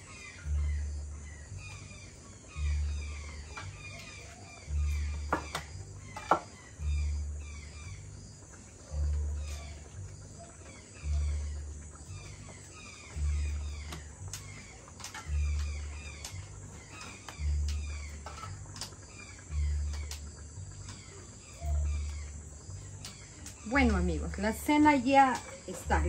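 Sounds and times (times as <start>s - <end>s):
deep low pulse: 0.0s - 14.6s, 15.2s - 18.8s, 19.4s - 20.9s
birds chirping: 0.0s - 26.0s.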